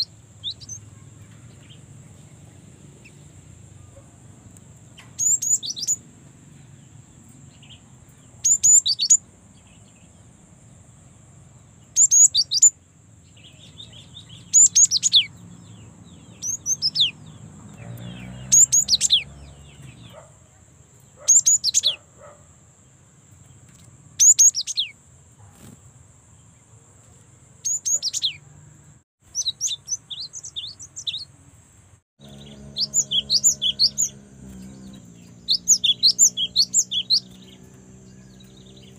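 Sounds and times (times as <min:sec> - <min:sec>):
bird singing high falling notes: 0:32.2 - 0:38.9.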